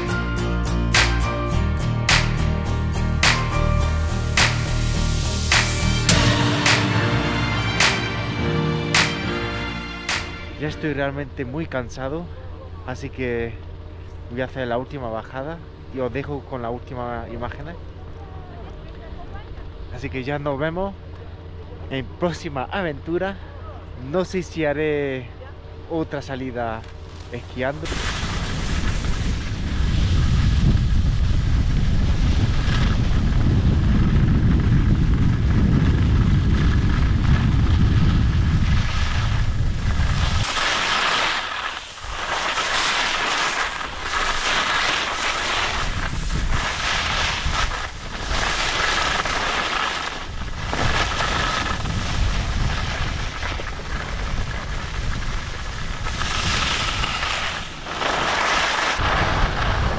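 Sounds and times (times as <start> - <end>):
skis scraping over snow: 27.1 - 59.9
wind buffeting microphone: 28.1 - 40.6, 45.3 - 49.5, 50.2 - 57.9, 58.9 - 59.9.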